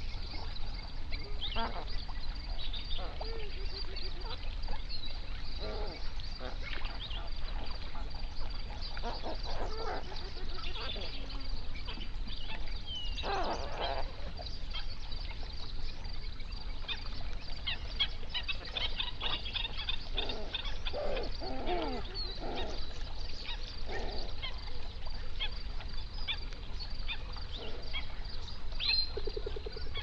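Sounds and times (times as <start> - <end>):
flamingos honking: 1.3 - 2.1, 18.0 - 24.6.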